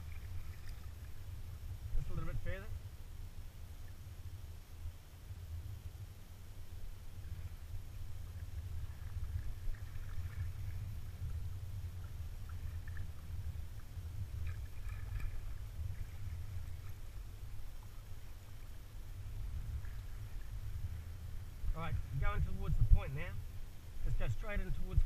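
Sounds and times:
paddle splashing in water: 0.0 - 1.2, 8.3 - 18.8
water lapping against hull: 0.0 - 2.7, 6.9 - 23.4
low rumble: 0.0 - 25.0.

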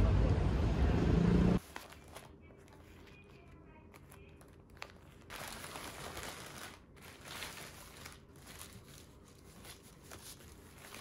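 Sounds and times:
wrapping paper rustling: 1.6 - 11.0.

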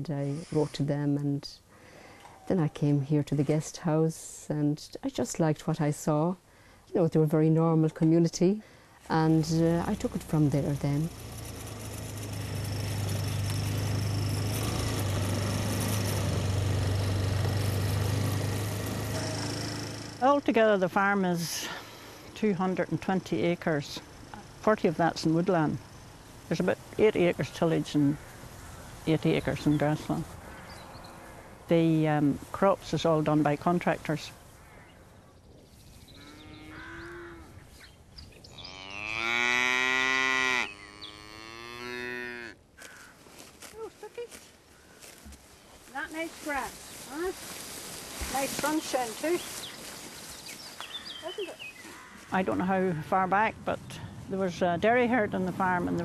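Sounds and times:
quad bike engine humming: 9.3 - 28.3, 54.4 - 56.0
cattle mooing: 38.6 - 42.6.

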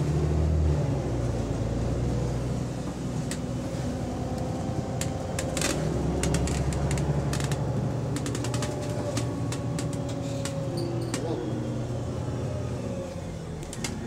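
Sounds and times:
bus engine drone: 0.0 - 14.0
bodywork rattles and clicks: 5.0 - 11.4.

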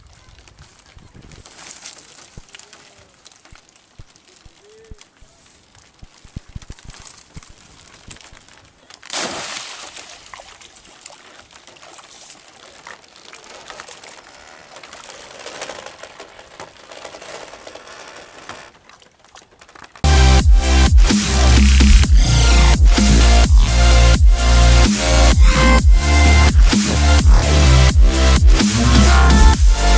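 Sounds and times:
water splashing and trickling: 0.0 - 20.9
fish thrashing at surface: 6.5 - 20.0
loud splash: 9.1 - 12.6
loud electronic music: 20.1 - 29.9.

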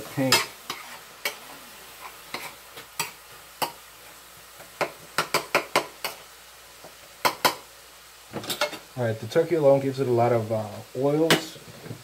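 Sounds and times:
metal utensil scraping a skillet: 0.0 - 3.8, 8.4 - 8.9.

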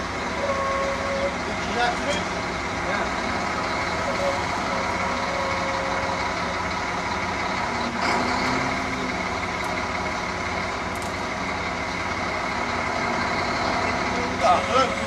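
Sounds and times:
diesel engine running: 0.0 - 15.0.

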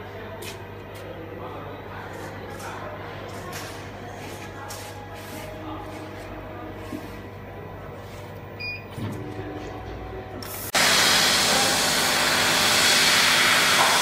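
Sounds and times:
laser cutting machine humming: 9.3 - 14.0
loud gas jet hiss: 10.8 - 14.0.

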